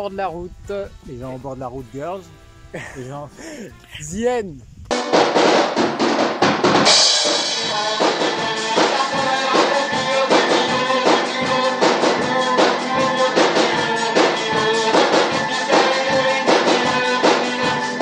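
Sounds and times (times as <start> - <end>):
outro music with steady beat: 4.9 - 18.0.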